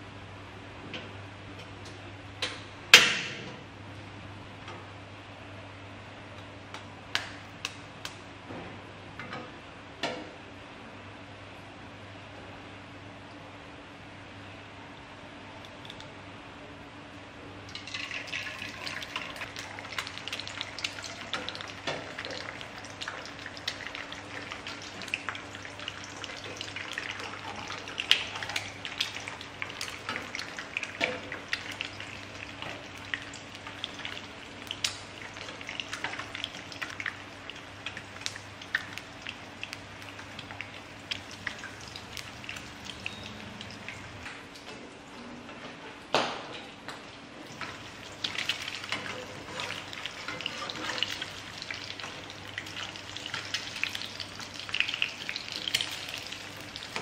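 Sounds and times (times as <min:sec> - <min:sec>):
faint hum: 0:00.0 - 0:46.0
egg sizzling in oil: 0:17.7 - 0:44.2, 0:47.5 - 0:57.0.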